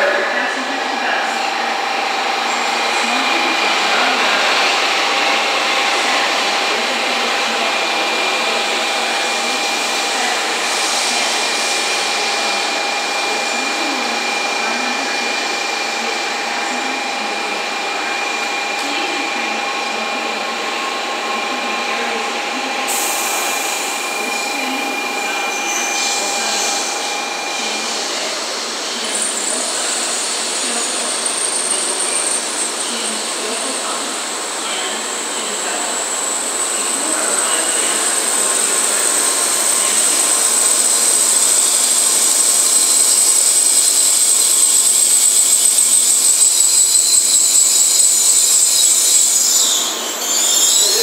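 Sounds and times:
train rushing rumble: 0.0 - 51.0.

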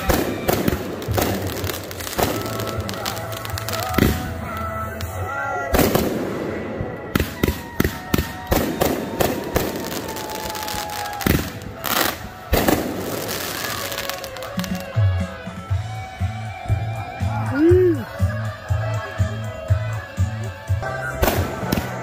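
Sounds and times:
fireworks bangs and crackling pops: 0.0 - 15.1, 21.2 - 22.0
music playing: 0.0 - 22.0.

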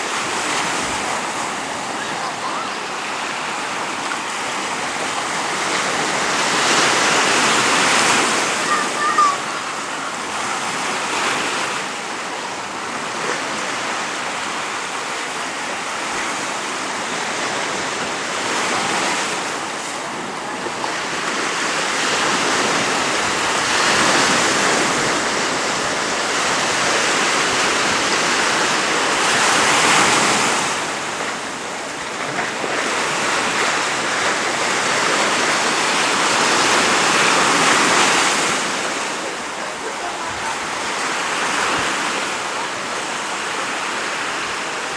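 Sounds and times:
sea surf breaking on shore: 0.0 - 44.9.

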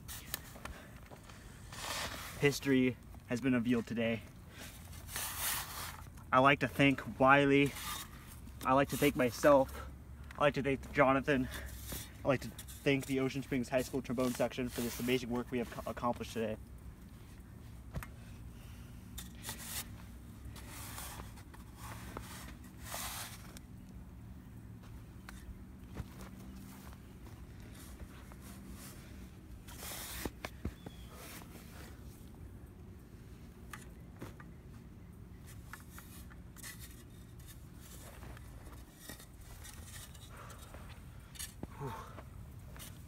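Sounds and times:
metal shovel scraping dirt: 0.0 - 16.6, 19.0 - 23.8, 27.6 - 32.0, 35.3 - 41.6
shoes scuffing over soil: 25.8 - 31.8.

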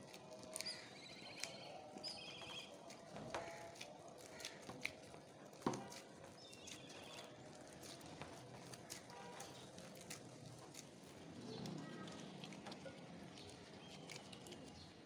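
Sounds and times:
dough squelching and slapping: 0.0 - 12.1.

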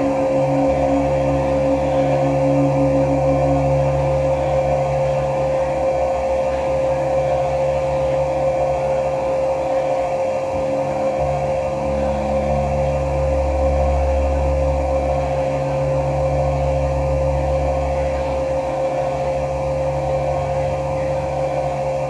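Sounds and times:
low rumbling drone: 0.0 - 22.0
steady high drone tone: 0.0 - 22.0.

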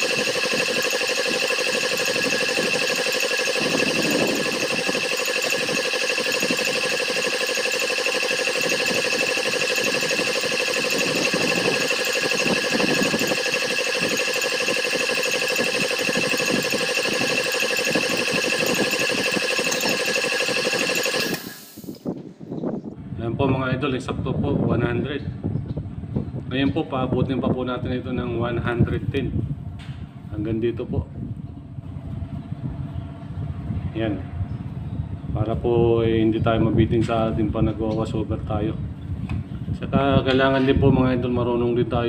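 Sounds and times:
piston air compressor running: 0.0 - 22.2.

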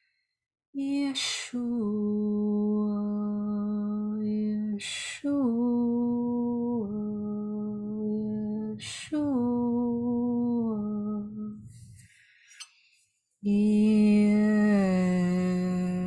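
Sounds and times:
woman chanting sustained tones: 0.8 - 11.8, 13.4 - 16.0
quick breath: 12.0 - 13.1.

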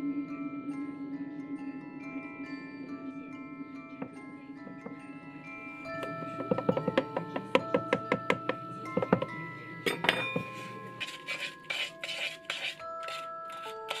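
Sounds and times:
music-box background music: 0.0 - 14.0
rustling of pan handling: 9.9 - 14.0.

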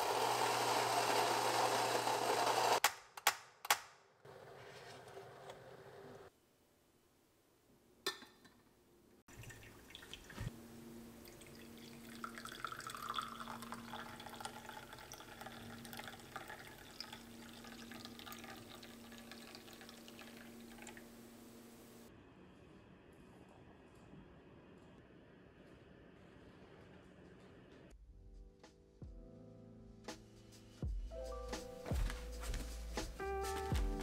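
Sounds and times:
coffee pouring into a cup: 9.3 - 10.5, 11.2 - 21.1.

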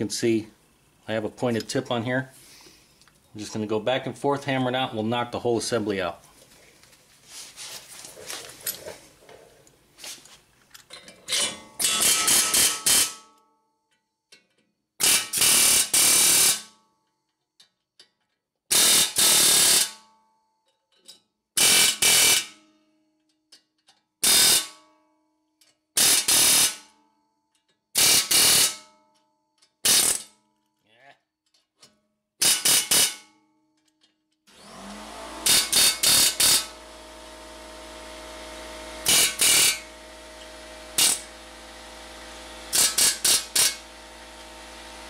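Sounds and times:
pneumatic air hammer rattling: 10.8 - 13.2, 15.0 - 16.7, 18.7 - 20.0, 21.6 - 22.6, 24.2 - 24.8, 26.0 - 26.8, 28.0 - 28.8, 29.8 - 30.4, 32.4 - 33.4, 35.3 - 45.0.

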